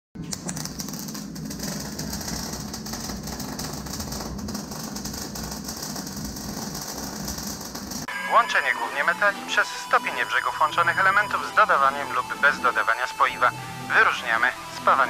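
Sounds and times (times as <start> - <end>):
arc welding crackling buzz: 0.2 - 8.1
low hum: 0.2 - 15.0.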